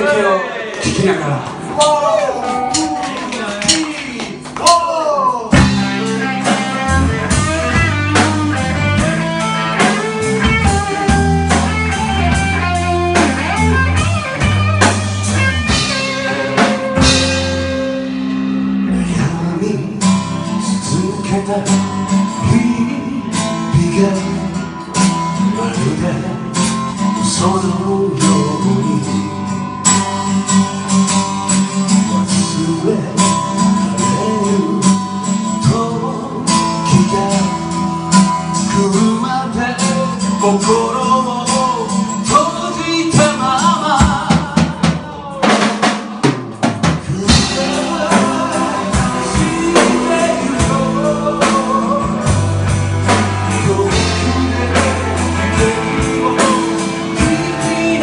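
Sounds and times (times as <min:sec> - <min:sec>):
live band playing: 0:00.0 - 0:58.0.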